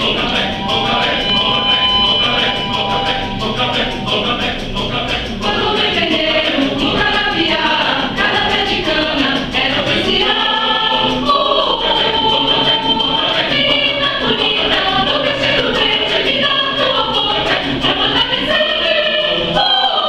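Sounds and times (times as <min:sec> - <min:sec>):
mixed choir singing: 0:00.0 - 0:20.0.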